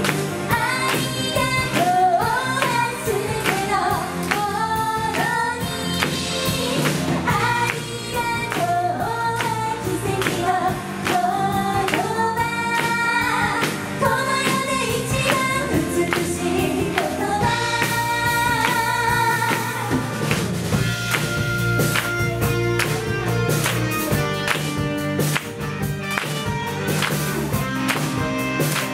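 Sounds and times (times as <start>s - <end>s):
pop band playing: 0.0s - 28.9s
women singing together: 0.5s - 20.1s.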